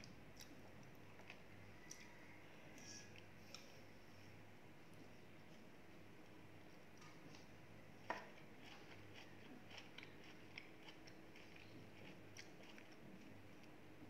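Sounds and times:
crunchy chewing: 0:08.1 - 0:13.8.

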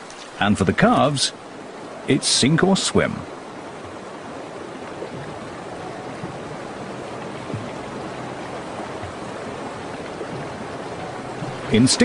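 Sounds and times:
river water rushing: 0:00.0 - 0:12.0
soft low thumps: 0:03.8 - 0:12.0.

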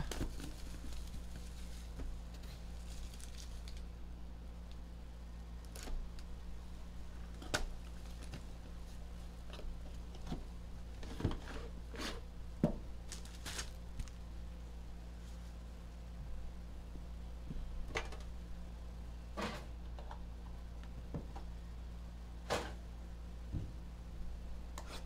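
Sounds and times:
steady low hum: 0:00.0 - 0:25.0
plastic shrink wrap tearing: 0:02.7 - 0:03.8, 0:13.1 - 0:14.2.

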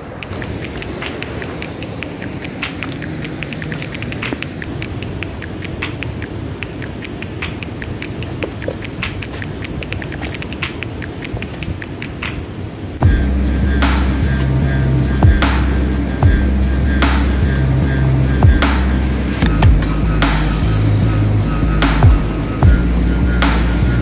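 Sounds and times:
river rapids rushing: 0:00.0 - 0:24.0
small clicks and taps: 0:00.2 - 0:12.4
music: 0:13.0 - 0:24.0.

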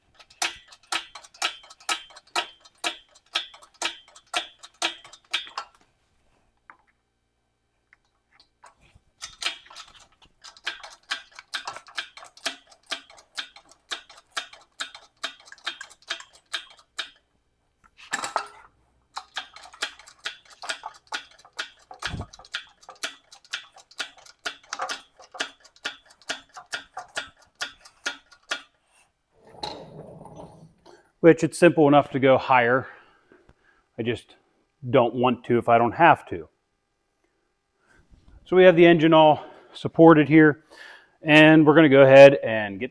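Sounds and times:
ratchet wrench clicking: 0:09.2 - 0:17.2.

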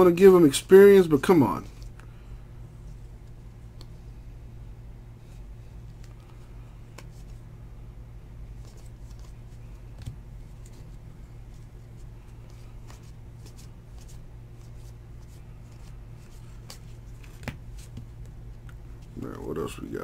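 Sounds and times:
low hum: 0:00.0 - 0:20.0
trading cards being flipped: 0:05.8 - 0:07.4, 0:08.5 - 0:19.2.

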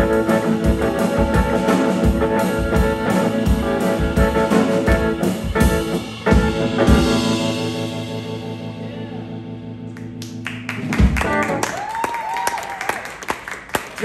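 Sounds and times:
audience clapping: 0:09.9 - 0:14.0.

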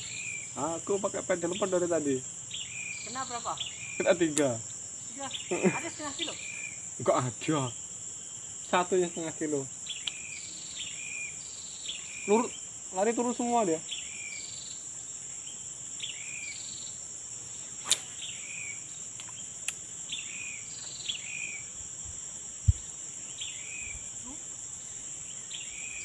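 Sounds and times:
insects droning: 0:00.0 - 0:26.0
sharp click: 0:17.8 - 0:18.1.

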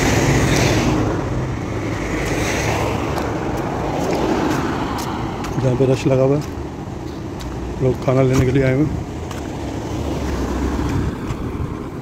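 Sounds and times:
car engines running: 0:00.0 - 0:12.0
tyres on the road: 0:00.0 - 0:12.0
wind rushing over microphone: 0:06.6 - 0:12.0.

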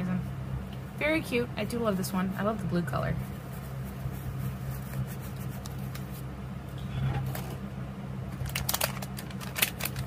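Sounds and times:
steady low hum: 0:00.0 - 0:10.0
plastic bag crinkling: 0:08.4 - 0:10.0.

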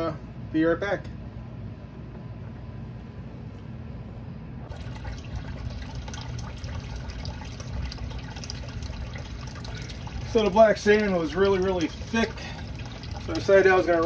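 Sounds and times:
steady low hum: 0:00.0 - 0:14.0
water trickling and splashing into tub: 0:04.7 - 0:14.0.

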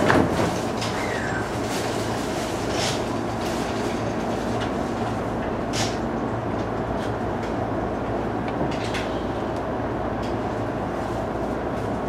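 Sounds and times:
electric train rumble and hum: 0:00.0 - 0:12.0.

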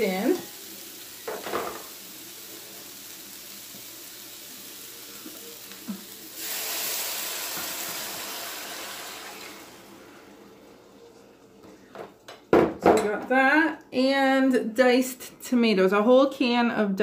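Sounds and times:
meat sizzling in a frying pan: 0:00.0 - 0:10.0
broth poured into hot pan: 0:00.2 - 0:10.4.

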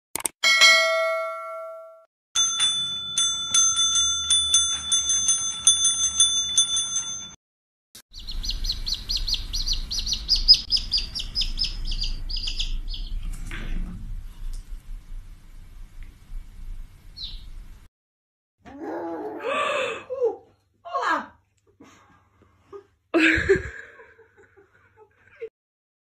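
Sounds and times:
service bell dinging: 0:00.4 - 0:07.4
high squeaking chirps: 0:08.1 - 0:13.2.

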